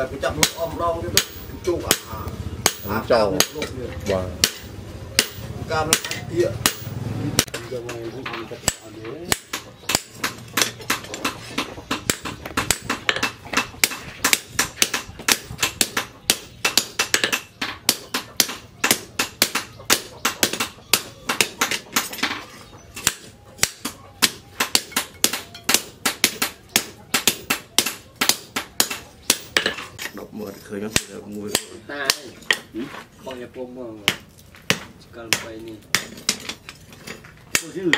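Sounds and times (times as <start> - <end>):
hammer striking hot metal on anvil: 0.4 - 3.8, 4.4 - 8.0, 8.6 - 22.2.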